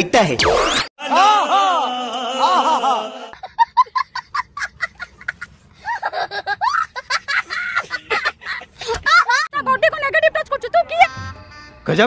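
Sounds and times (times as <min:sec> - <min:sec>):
child laughing: 0:02.4 - 0:09.7.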